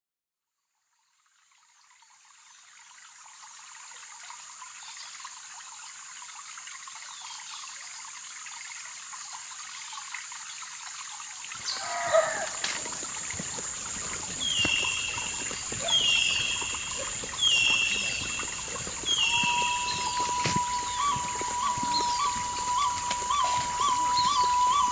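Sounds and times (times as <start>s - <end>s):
bird calling: 11.6s - 24.9s
high-pitched insect haze: 11.6s - 24.9s.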